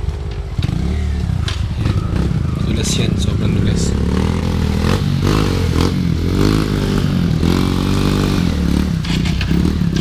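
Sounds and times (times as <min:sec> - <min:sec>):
motorcycle engine revving: 0:00.0 - 0:10.0.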